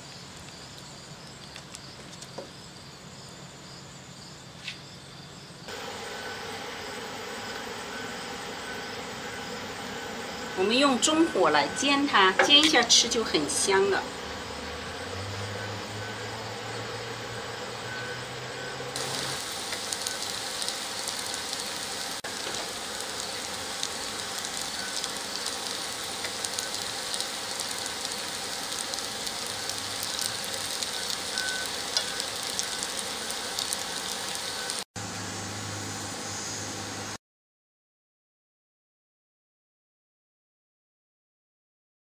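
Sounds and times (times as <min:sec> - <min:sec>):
food sizzling in oil: 0:05.7 - 0:37.1.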